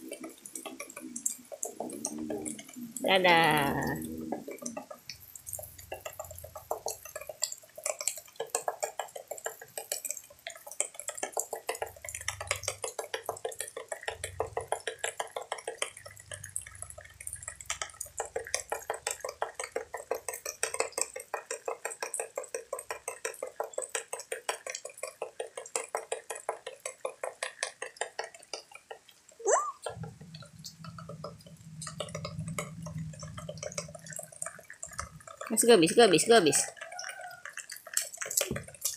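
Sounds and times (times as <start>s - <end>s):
water dripping on hard surface: 0.0s - 38.9s.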